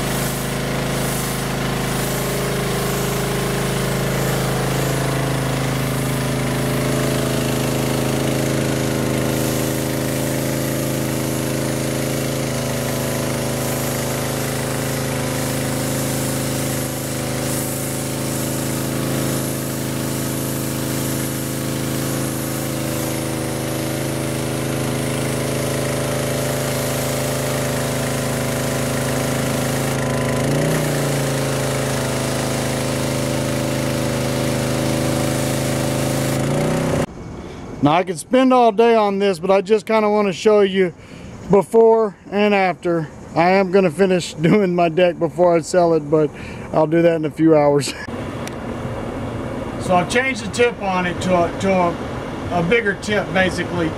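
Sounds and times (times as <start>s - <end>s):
high-pressure water jet hissing: 0.0s - 37.1s, 49.8s - 53.9s
pressure washer engine running: 0.0s - 53.9s.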